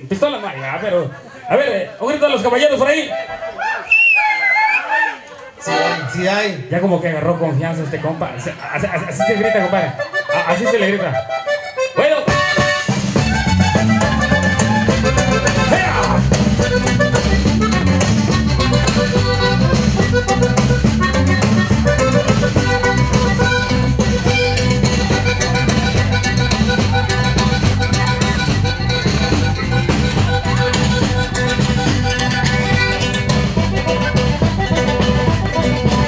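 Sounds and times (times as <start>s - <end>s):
accordion lead: 0.0s - 4.0s, 5.3s - 6.8s, 7.7s - 36.0s
bass: 5.6s - 36.0s
drums with steady beat: 12.2s - 36.0s.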